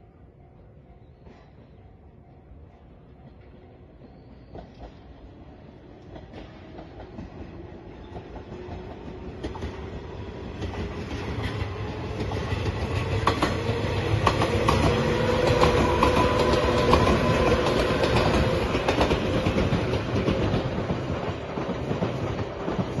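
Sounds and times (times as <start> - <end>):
train wheels clacking over rail joints: 6.0 - 23.0.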